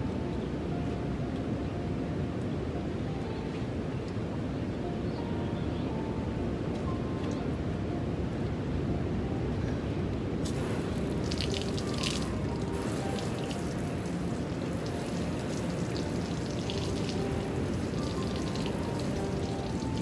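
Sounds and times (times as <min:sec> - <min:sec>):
water spray hitting metal: 0:10.4 - 0:20.0.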